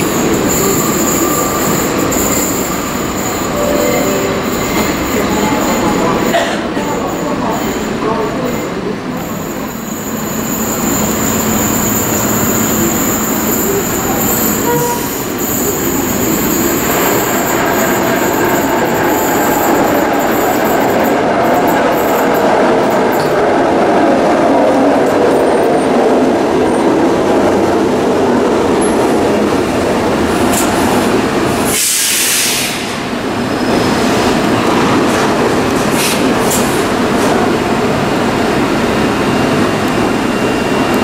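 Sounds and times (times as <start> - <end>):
train wheels rumbling: 0.0 - 41.0
air hiss: 31.7 - 33.1.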